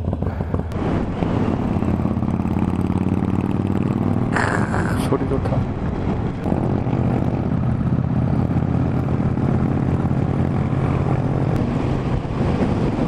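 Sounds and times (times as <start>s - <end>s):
motorcycle engine cruising: 0.0s - 13.0s
wind rushing: 5.6s - 13.0s.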